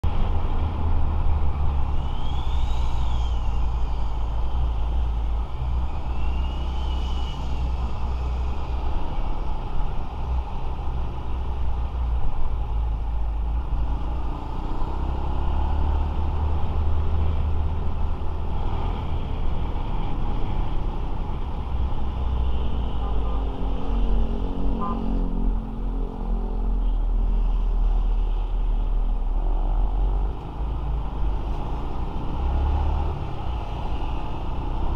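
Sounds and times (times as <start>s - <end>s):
road and engine noise: 0.0s - 34.9s
short whistles: 1.9s - 4.0s, 6.0s - 7.6s.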